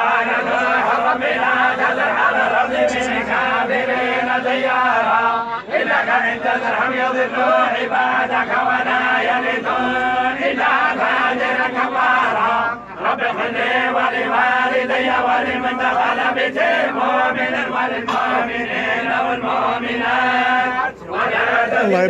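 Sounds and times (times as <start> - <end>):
men chanting together: 0.0 - 22.0.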